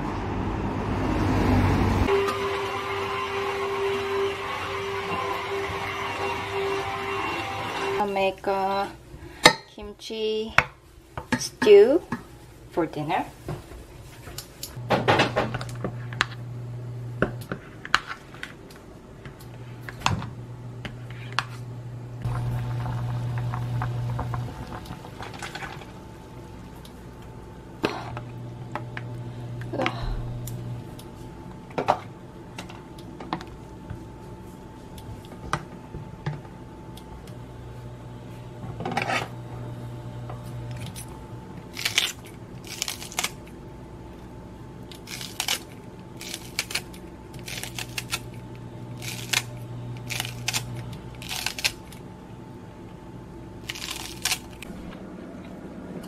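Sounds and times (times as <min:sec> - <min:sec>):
low hum: 0:18.8 - 0:56.0
stew simmering: 0:22.2 - 0:29.7.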